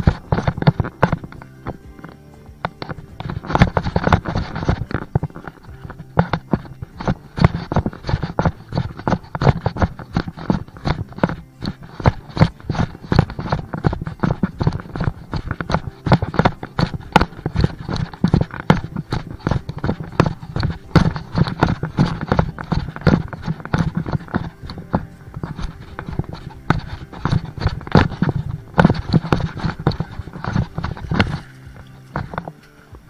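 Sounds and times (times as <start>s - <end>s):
footsteps on a trail: 0.0s - 33.0s.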